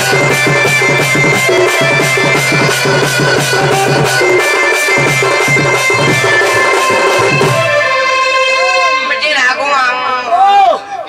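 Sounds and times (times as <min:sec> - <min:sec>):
barrel drum beating fast rhythm: 0:00.0 - 0:08.1
reedy wind instrument: 0:00.0 - 0:11.0.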